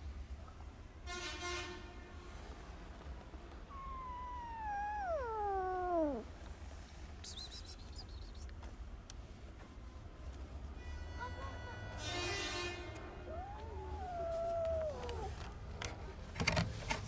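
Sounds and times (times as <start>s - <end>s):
kitten meowing: 3.7s - 6.3s, 13.2s - 15.4s.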